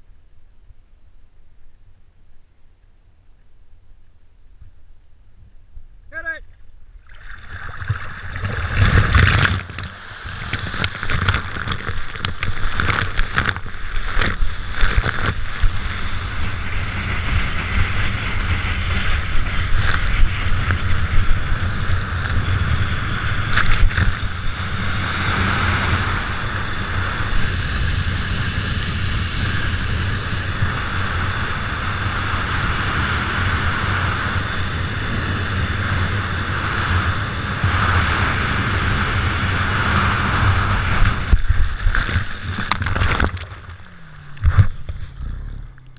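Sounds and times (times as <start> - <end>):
water splashing against camera: 7.0 - 16.6, 23.5 - 24.4, 40.6 - 45.9
water rushing and spraying: 7.0 - 22.6.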